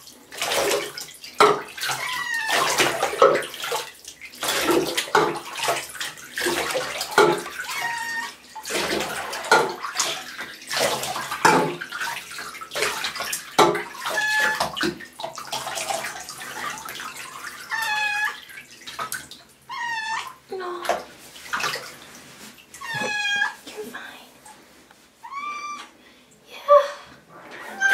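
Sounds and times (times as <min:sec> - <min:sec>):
water splashing in bathtub: 0:00.0 - 0:27.9
cat meowing: 0:01.9 - 0:02.8, 0:07.6 - 0:08.4, 0:14.0 - 0:14.6, 0:17.7 - 0:18.4, 0:19.7 - 0:20.4, 0:22.8 - 0:23.6, 0:25.2 - 0:25.9, 0:27.7 - 0:27.9.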